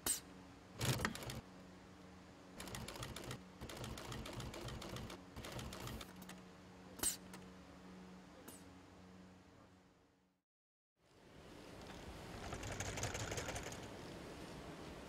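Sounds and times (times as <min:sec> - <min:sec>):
sewing machine needle strokes: 0:00.8 - 0:01.4, 0:02.6 - 0:06.2, 0:12.4 - 0:13.9.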